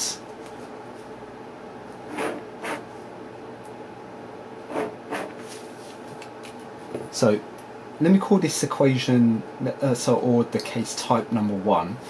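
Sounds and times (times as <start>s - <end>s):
pen scratching along ruler: 2.1s - 2.8s, 4.7s - 5.4s.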